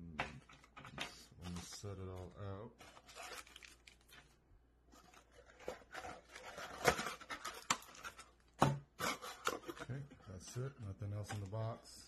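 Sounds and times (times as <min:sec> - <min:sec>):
plastic bags crinkling: 0:01.4 - 0:04.4.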